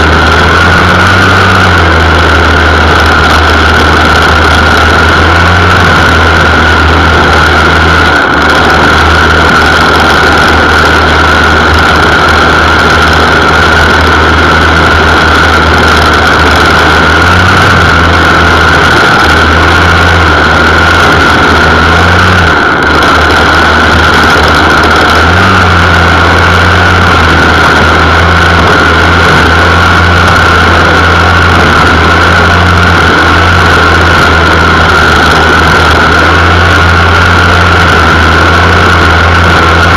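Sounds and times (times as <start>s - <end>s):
lawn mower engine running: 0.0s - 39.9s.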